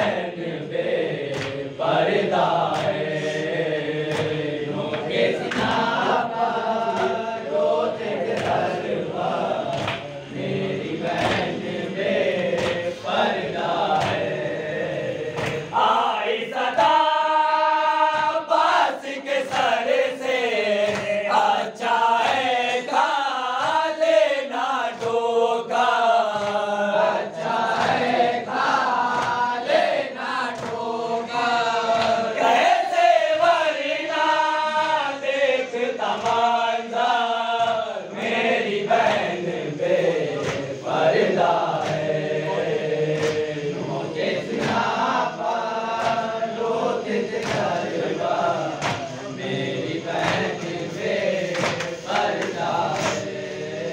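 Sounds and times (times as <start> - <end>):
men chanting a lament: 0.0 - 53.9
chest-beating slaps: 1.2 - 17.0, 20.7 - 21.5, 24.9 - 25.4, 26.3 - 26.8, 27.5 - 29.6, 30.4 - 31.0, 31.8 - 32.7, 36.0 - 45.3, 45.9 - 46.4, 47.3 - 53.8.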